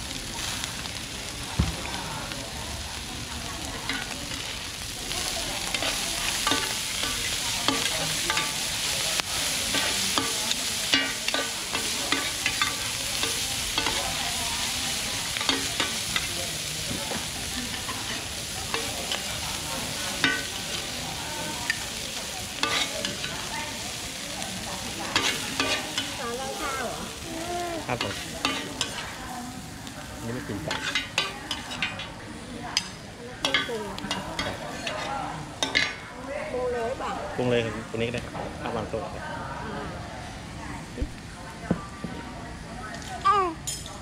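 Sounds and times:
food sizzling in oil: 0.0s - 40.7s
metal spatulas scraping pan: 22.6s - 23.3s, 25.1s - 26.2s, 28.0s - 29.2s, 30.7s - 32.1s, 32.8s - 36.0s.

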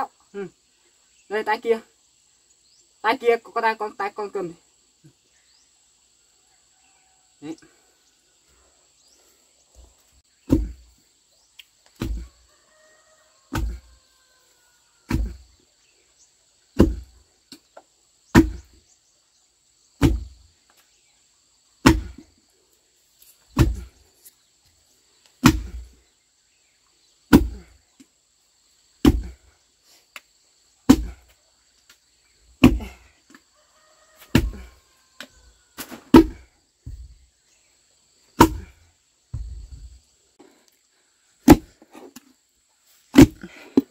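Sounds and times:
pestle thudding in wooden mortar: 10.4s - 10.9s, 12.0s - 12.3s, 13.5s - 13.9s, 15.1s - 15.4s, 16.8s - 17.1s, 18.3s - 18.8s, 20.0s - 20.4s, 21.8s - 22.2s, 23.5s - 24.0s, 25.4s - 26.0s, 27.3s - 27.7s, 29.0s - 29.4s, 30.9s - 31.2s, 32.6s - 33.0s, 34.3s - 34.7s, 35.8s - 37.2s, 38.4s - 40.0s, 41.4s - 42.1s, 43.1s - 43.9s.

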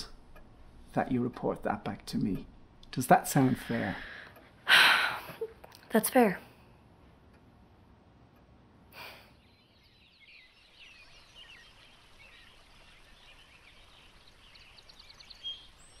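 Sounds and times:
small birds chirping: 8.3s - 16.0s.

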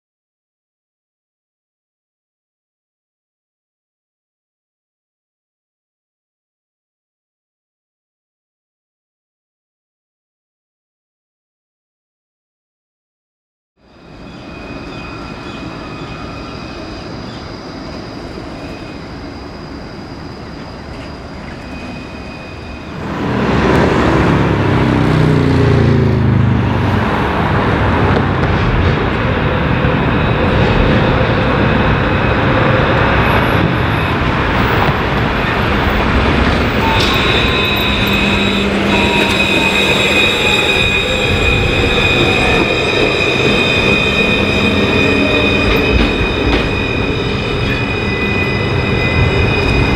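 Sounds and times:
tram wheels squealing: 13.8s - 26.1s, 26.7s - 49.9s
tram passing with falling whine: 13.8s - 49.9s
tram rolling noise: 13.8s - 49.9s.

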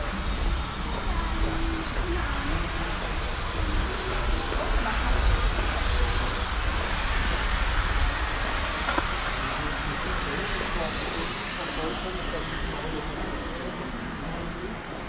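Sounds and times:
faint voices of passers-by: 0.0s - 15.0s.

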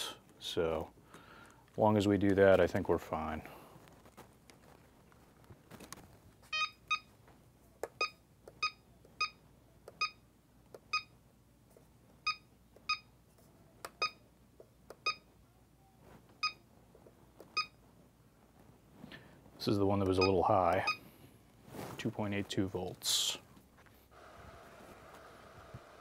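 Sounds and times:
charger keypad beeps: 6.5s - 7.1s, 8.0s - 10.2s, 10.9s - 11.1s, 12.2s - 13.1s, 13.9s - 14.2s, 15.0s - 15.3s, 16.4s - 16.6s, 17.5s - 17.8s.

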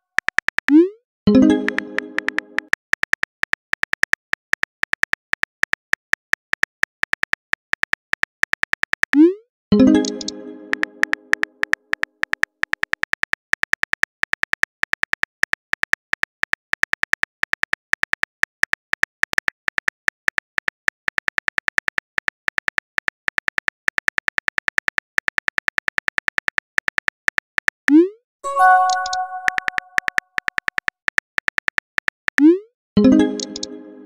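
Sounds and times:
keyboard clicks: 0.2s - 3.2s, 8.8s - 13.2s, 28.5s - 32.5s, 33.1s - 34.0s.

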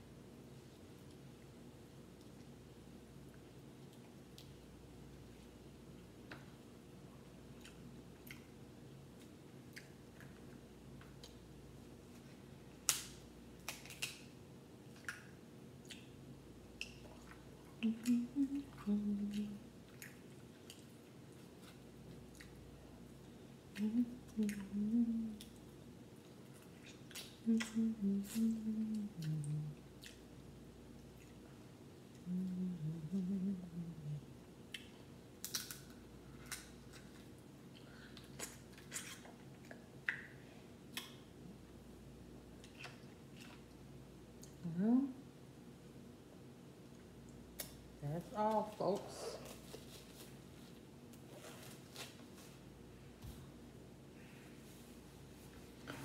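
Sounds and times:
crab shell cracking: 12.9s - 14.2s, 35.4s - 37.1s
person humming mm: 17.8s - 19.6s, 23.8s - 25.5s, 27.4s - 29.8s, 32.2s - 34.3s, 44.6s - 45.2s.

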